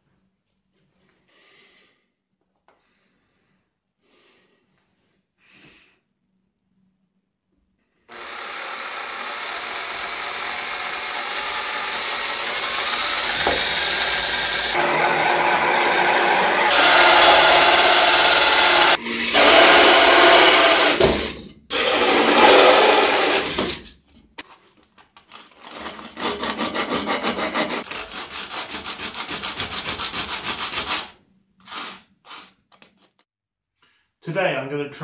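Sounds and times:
drill cutting through wood: 8.1s - 23.9s, 25.6s - 27.9s
hand sanding strokes: 26.2s - 32.5s.

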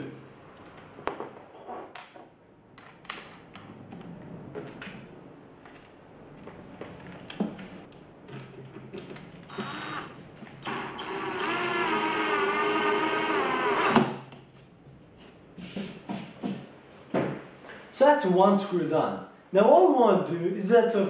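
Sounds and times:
cordless drill driving a screw: 9.5s - 14.2s.

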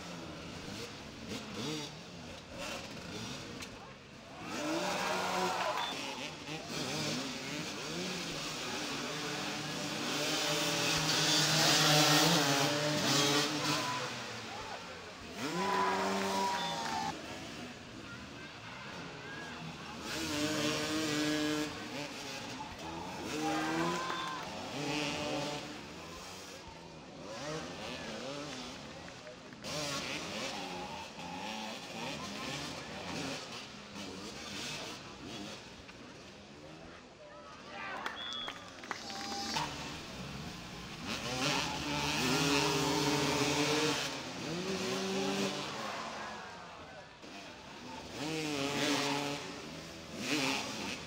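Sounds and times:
motorcycle engines revving: 0.0s - 37.7s, 38.5s - 51.0s.

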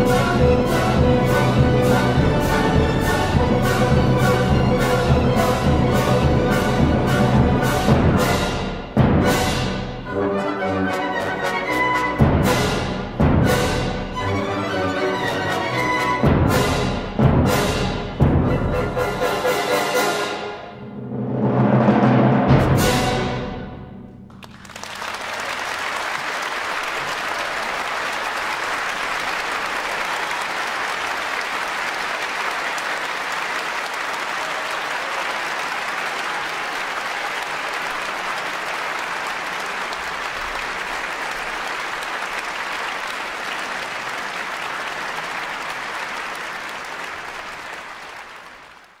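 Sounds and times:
audience applauding: 24.3s - 49.0s.

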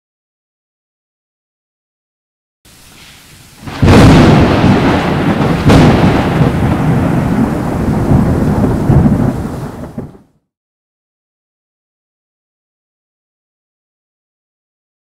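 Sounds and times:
rolling thunder rumble: 3.5s - 10.4s
thunder cracks: 3.5s - 10.4s.

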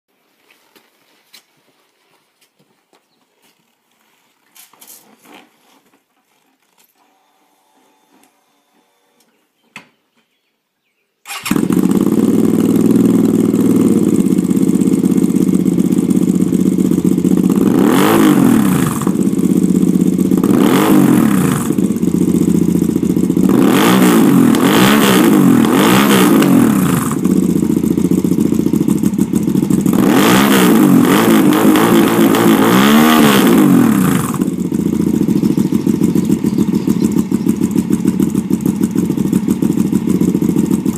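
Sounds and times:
motorcycle engine idling and revving: 11.3s - 40.9s.

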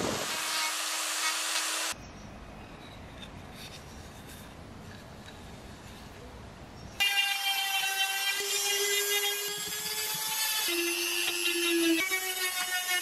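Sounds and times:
rotary tool sanding wood: 0.0s - 2.0s, 7.0s - 13.0s.

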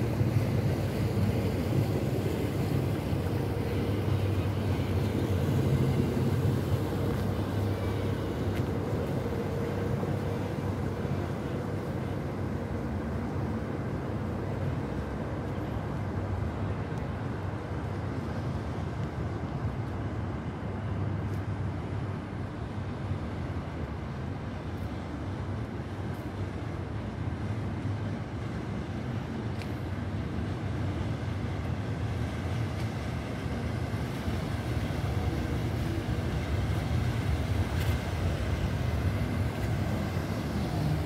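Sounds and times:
rumble of city traffic: 0.0s - 41.0s.

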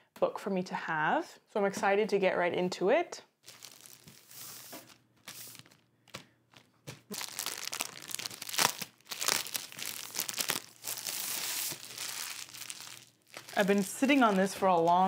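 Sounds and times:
plastic wrap crinkling and tearing: 3.4s - 15.0s.

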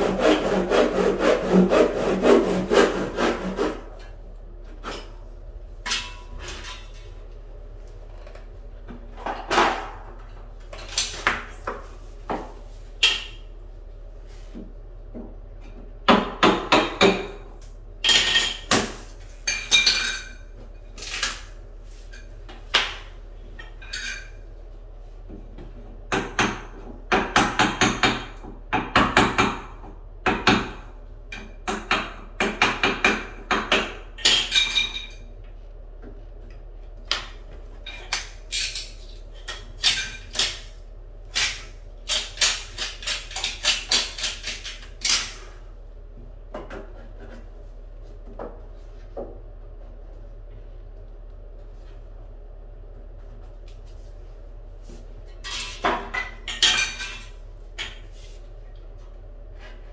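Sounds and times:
hammer striking chisel: 16.1s - 17.4s, 26.1s - 29.7s.

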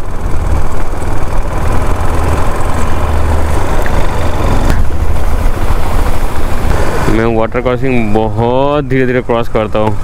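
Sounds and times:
motorcycle engine rumble: 0.0s - 10.0s
road and wind noise: 0.0s - 10.0s.

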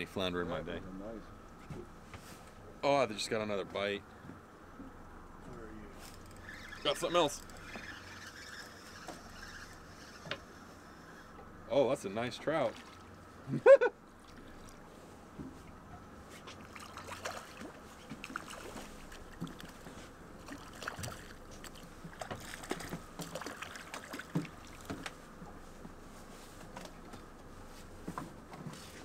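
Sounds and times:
water lapping against boat hull: 12.5s - 13.5s, 14.1s - 29.0s.

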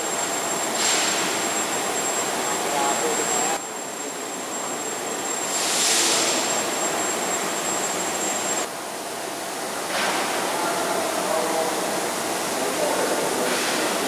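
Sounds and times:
thin high whine: 0.0s - 8.8s
workshop hall noise: 0.0s - 14.0s
hiss: 5.5s - 6.5s, 13.2s - 14.0s.

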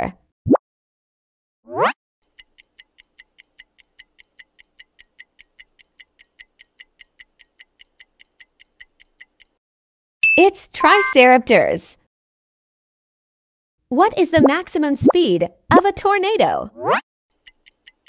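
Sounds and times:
rapid clock ticks: 2.2s - 9.6s, 17.3s - 18.0s.

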